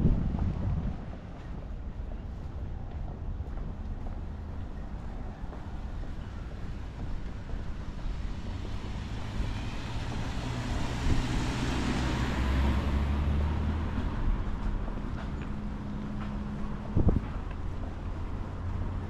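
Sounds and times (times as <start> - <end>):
vehicle passing by: 8.0 - 19.0.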